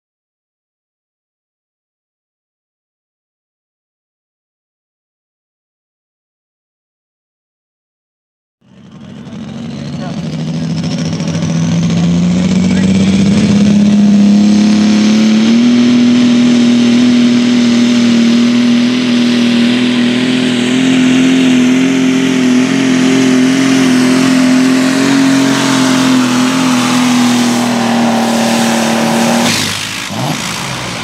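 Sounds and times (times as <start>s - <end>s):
tractor engine drone: 8.6s - 31.0s.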